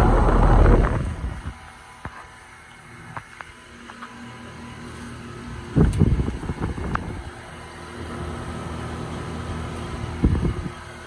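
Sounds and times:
wind buffeting microphone: 0:00.0 - 0:01.6, 0:05.8 - 0:07.3, 0:10.2 - 0:10.8
condensing unit humming: 0:00.0 - 0:11.0.

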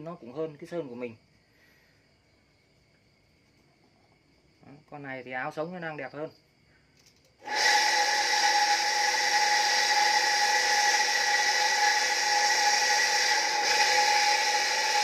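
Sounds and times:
electric water pump motor whining: 0:07.4 - 0:15.0.

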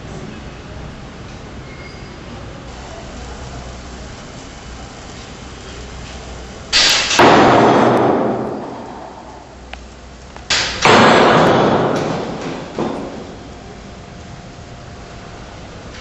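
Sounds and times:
loud crashes: 0:06.8 - 0:09.2, 0:10.6 - 0:13.2.

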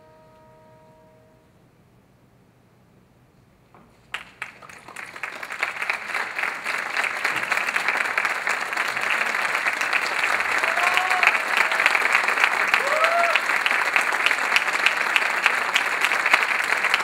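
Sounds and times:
audience applauding: 0:04.1 - 0:17.0.

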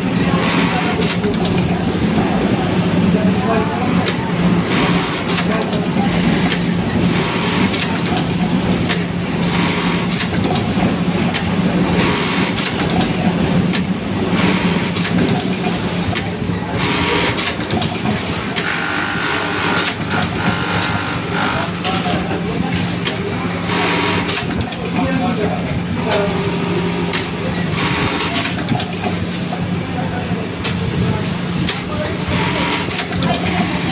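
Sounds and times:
short bursts of machine noise: 0:17.8 - 0:21.6.

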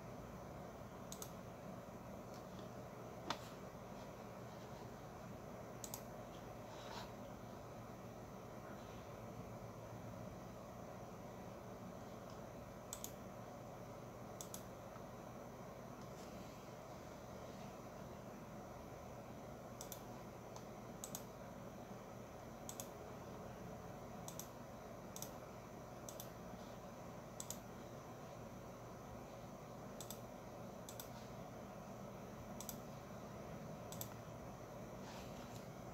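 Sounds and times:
faint room and computer hum: 0:00.0 - 0:35.9
computer mouse clicks: 0:01.0 - 0:01.5, 0:02.2 - 0:03.6, 0:05.7 - 0:07.3, 0:12.2 - 0:13.3, 0:14.4 - 0:15.1, 0:19.8 - 0:21.4, 0:22.6 - 0:23.0, 0:24.2 - 0:25.4, 0:26.0 - 0:26.5, 0:27.3 - 0:27.7, 0:30.0 - 0:31.2, 0:32.5 - 0:32.9, 0:33.9 - 0:34.3, 0:35.4 - 0:35.8.

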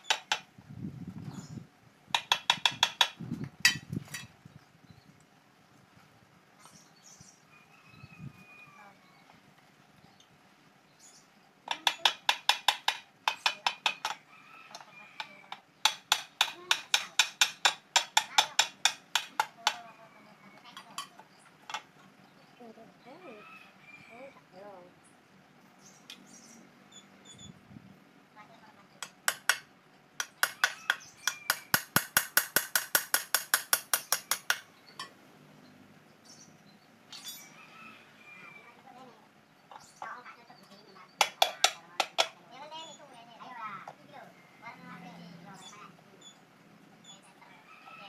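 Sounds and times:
hammer striking metal: 0:29.0 - 0:35.1.

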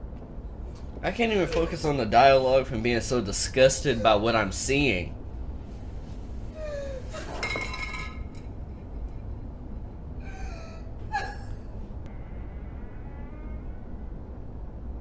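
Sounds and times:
low steady hum: 0:00.0 - 0:15.0
woman gasping and whimpering: 0:06.6 - 0:07.4, 0:10.2 - 0:11.8.

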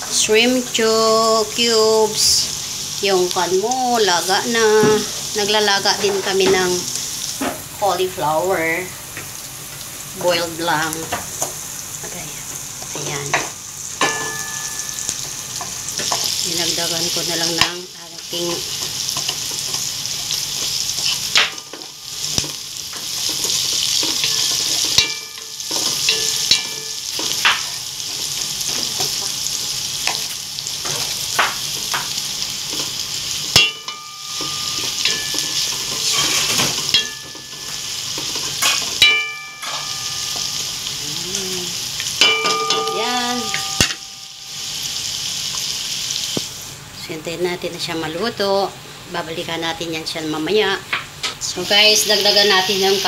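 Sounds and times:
onions sizzling in hot oil: 0:00.0 - 0:53.0
wooden spatula scraping a pot: 0:34.8 - 0:36.9.

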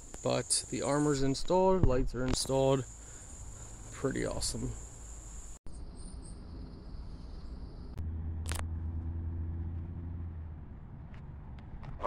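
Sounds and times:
vehicle engine humming: 0:06.8 - 0:12.0
sharp click: 0:08.4 - 0:08.7.

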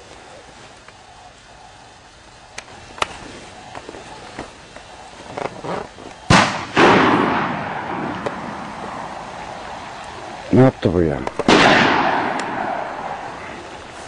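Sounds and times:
faint sharp cracks: 0:02.5 - 0:10.2, 0:11.2 - 0:14.0
shotgun shots echoing: 0:06.2 - 0:10.2, 0:11.2 - 0:13.8.

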